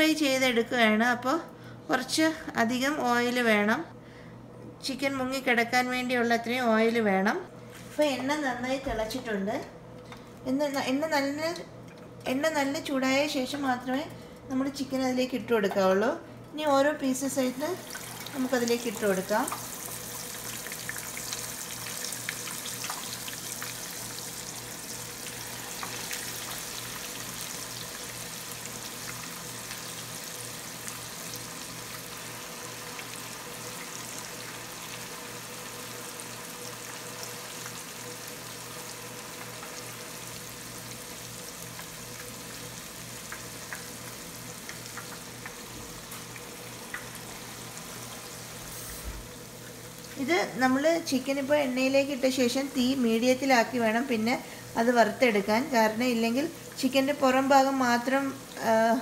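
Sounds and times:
deep-frying oil sizzling: 0:17.2 - 0:59.0.

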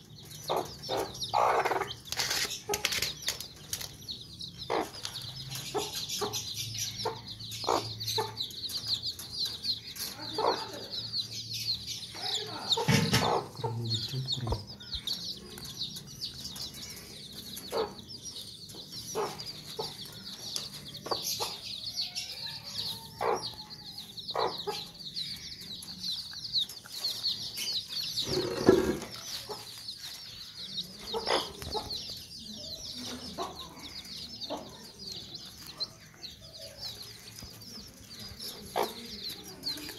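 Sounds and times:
chicks peeping: 0:00.0 - 0:39.9
hen clucking: 0:00.1 - 0:03.9, 0:04.5 - 0:11.3, 0:12.2 - 0:35.8, 0:37.0 - 0:39.9.

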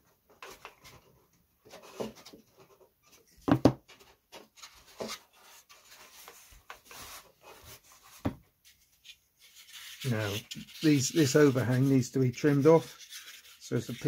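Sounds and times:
light rubbing of wood: 0:04.0 - 0:14.0.

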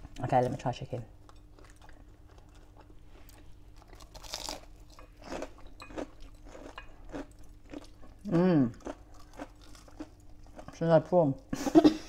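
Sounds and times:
crunching and chewing: 0:01.2 - 0:10.8.

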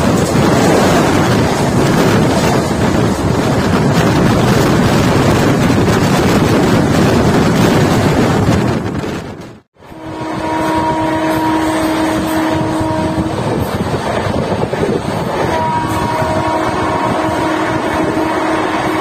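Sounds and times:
rushing wind: 0:00.0 - 0:19.0
train running at speed: 0:00.0 - 0:19.0
locomotive horn blasts: 0:09.8 - 0:13.8, 0:15.2 - 0:19.0.

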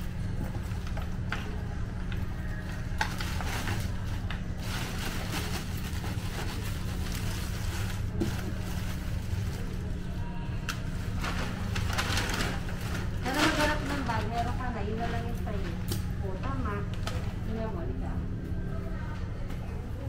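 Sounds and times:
plastic bag crinkling: 0:02.5 - 0:15.9.

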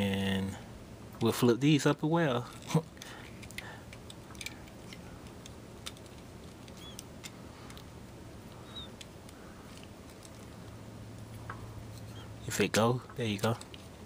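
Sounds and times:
low steady hum: 0:00.0 - 0:14.0
plastic toy parts clicking: 0:03.4 - 0:07.1.

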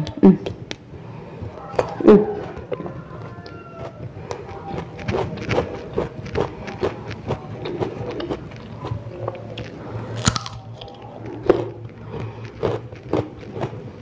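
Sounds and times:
crunchy fruit chewing: 0:00.4 - 0:14.0.

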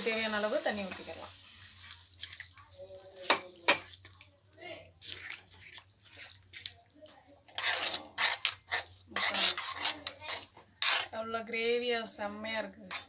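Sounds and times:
spoon scraping metal pot: 0:05.0 - 0:06.7, 0:07.4 - 0:11.4, 0:12.8 - 0:13.0.

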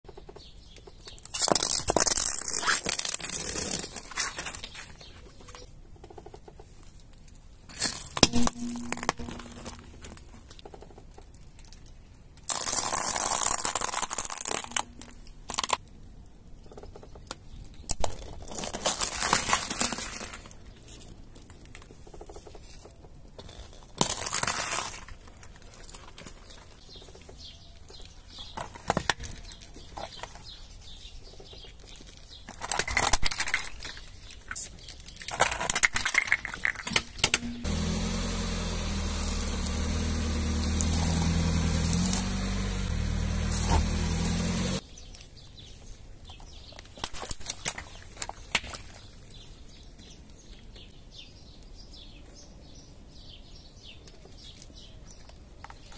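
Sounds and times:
tyre crushing objects: 0:37.2 - 0:44.8.

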